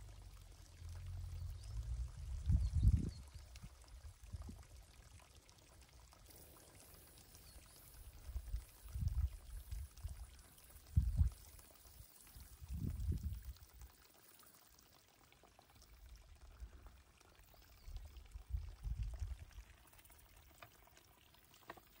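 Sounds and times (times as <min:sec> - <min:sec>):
faint steady hiss: 0:00.0 - 0:18.7
wind buffeting microphone: 0:01.9 - 0:03.3, 0:08.3 - 0:10.2, 0:10.9 - 0:11.3, 0:12.6 - 0:13.6.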